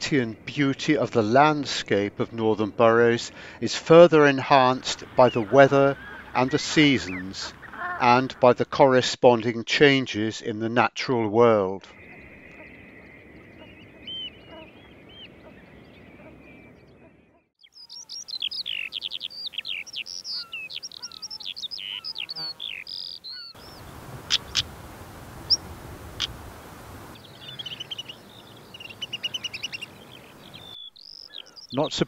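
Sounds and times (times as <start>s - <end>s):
rapid sweeping bird song: 0.1s - 8.7s, 11.9s - 32.0s
linnet twittering: 4.6s - 8.4s, 11.9s - 24.7s, 27.1s - 32.0s
bird chirps: 4.9s - 8.4s, 11.9s - 24.7s, 27.1s - 32.0s
steady hiss: 23.6s - 27.2s.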